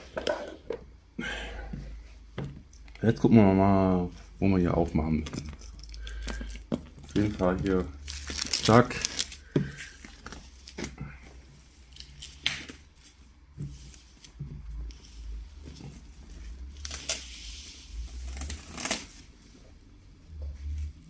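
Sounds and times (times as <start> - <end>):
plastic wrapping crinkling: 5.4 - 10.9.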